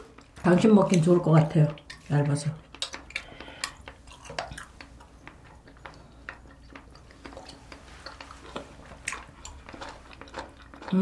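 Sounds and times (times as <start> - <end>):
quiet chewing: 0.0 - 11.0
wet mouth clicks and smacks: 2.7 - 9.6.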